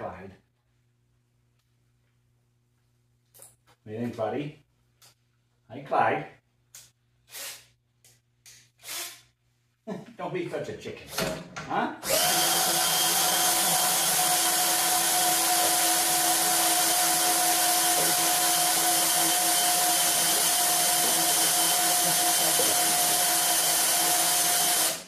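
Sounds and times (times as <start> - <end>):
cordless drill running: 12.0 - 25.0.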